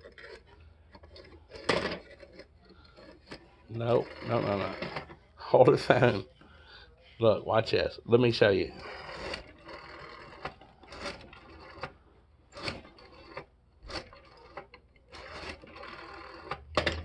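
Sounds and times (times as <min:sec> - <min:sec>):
rotary dial clicking: 0:00.0 - 0:05.2, 0:08.6 - 0:17.0.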